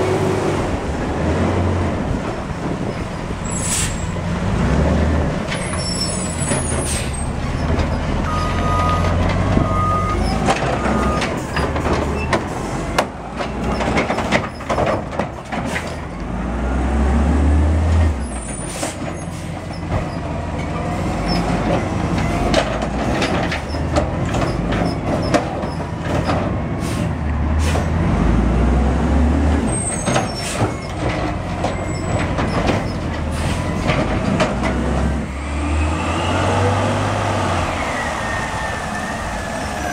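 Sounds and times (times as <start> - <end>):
diesel engine revving: 0.0 - 14.6, 15.6 - 39.9
air brake hisses: 3.5 - 4.1, 6.8 - 7.2, 26.8 - 27.9.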